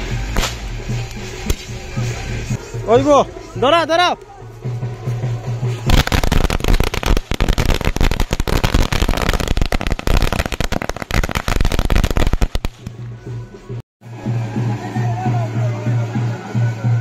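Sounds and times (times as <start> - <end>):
firecrackers banging: 0.0 - 2.6, 4.6 - 13.0.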